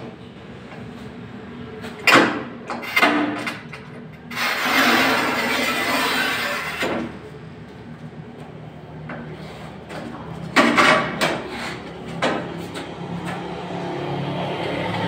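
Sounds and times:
scoring wheel scratching tile: 4.4 - 6.8.

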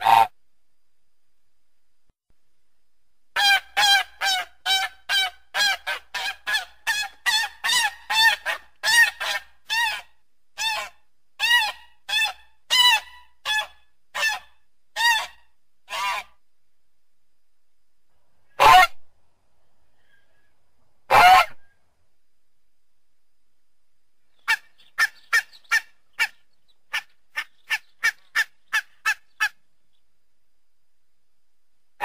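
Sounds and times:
goose honking: 21.1 - 21.6.

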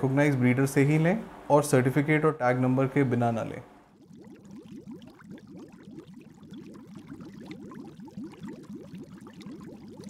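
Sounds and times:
aquarium water bubbling: 3.0 - 10.0.

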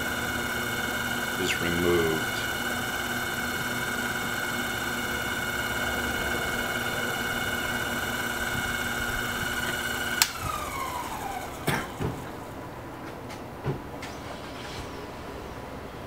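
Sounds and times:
lathe motor whine: 0.0 - 12.5.

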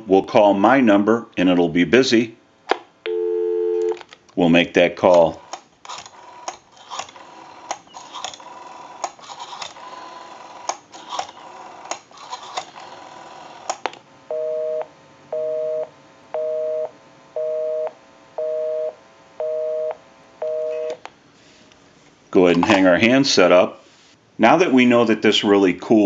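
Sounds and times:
telephone busy signal beeping: 3.1 - 4.0, 14.3 - 21.0.

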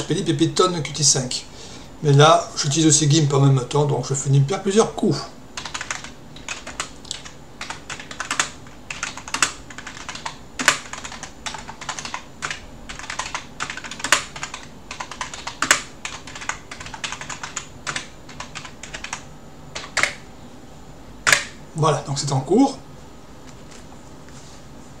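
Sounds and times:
typing on computer keyboard: 5.6 - 20.2, 21.3 - 21.5.

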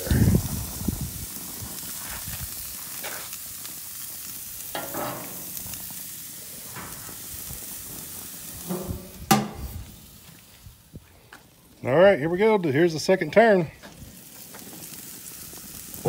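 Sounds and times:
meat sizzling on a grill: 0.0 - 16.0
metal grill lid clanking shut: 4.7 - 5.8, 8.6 - 9.8.

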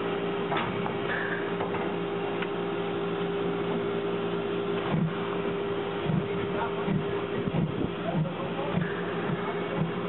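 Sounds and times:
steady hum with constant tone: 0.0 - 10.0
steam hissing: 6.1 - 10.0.

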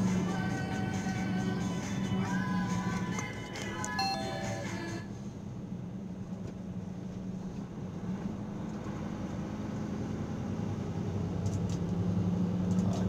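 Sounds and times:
vehicle engine and road noise: 0.0 - 13.0.

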